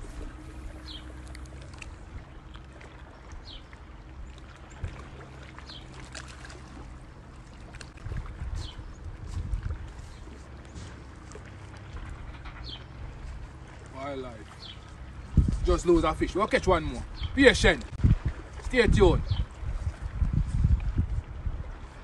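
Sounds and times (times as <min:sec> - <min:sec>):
wind on microphone: 0:00.0 - 0:02.4, 0:04.7 - 0:05.2, 0:07.8 - 0:11.0, 0:14.6 - 0:22.0
small waves lapping on rocks: 0:00.0 - 0:20.2.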